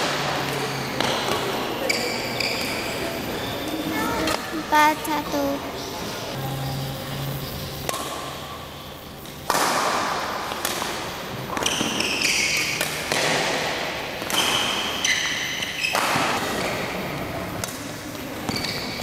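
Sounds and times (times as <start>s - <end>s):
shoes squeaking on court: 0.5s - 6.1s, 18.4s - 19.0s
rackets striking shuttlecock: 9.2s - 16.9s.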